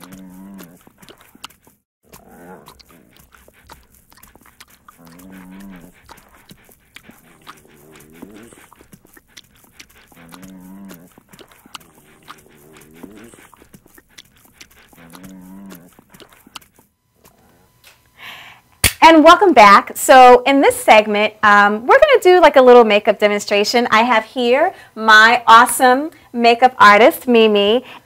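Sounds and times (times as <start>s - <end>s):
puppy licking: 0.0s - 17.6s
puppy moaning: 0.0s - 17.8s.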